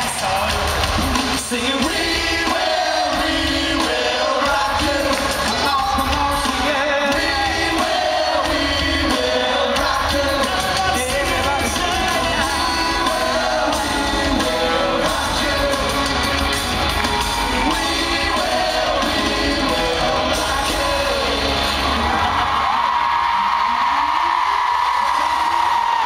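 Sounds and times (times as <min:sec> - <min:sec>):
male vocal group singing: 0:00.0 - 0:22.4
amplified backing music: 0:00.0 - 0:23.4
crowd shouting: 0:06.7 - 0:26.0.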